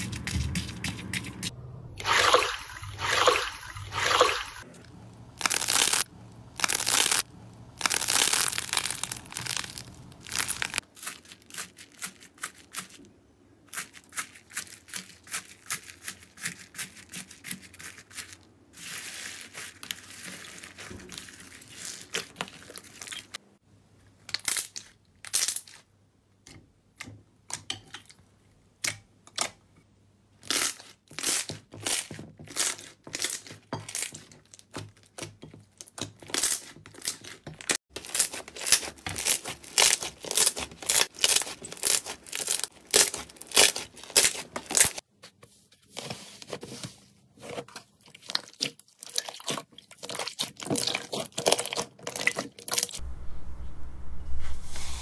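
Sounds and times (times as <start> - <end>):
hands squishing slime: 5.4 - 13.0, 31.2 - 45.0.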